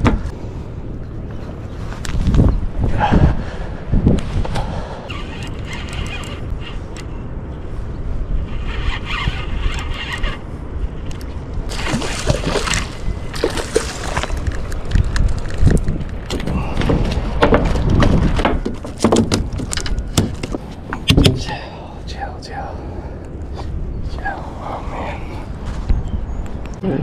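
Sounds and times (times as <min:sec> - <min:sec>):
wind buffeting microphone: 0:00.0 - 0:27.0
sharp clicks and rattles: 0:05.1 - 0:07.1
water sloshing and lapping: 0:11.1 - 0:21.6.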